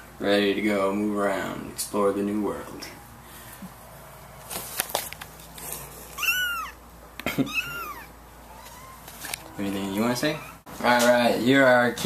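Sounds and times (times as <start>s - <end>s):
kitten meowing: 6.1s - 6.8s, 7.4s - 10.7s.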